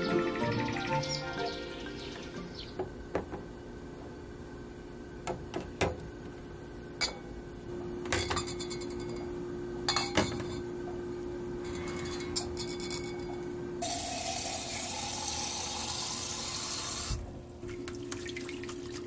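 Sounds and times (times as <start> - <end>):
glass containers clinking: 8.2 - 9.3, 9.9 - 10.7.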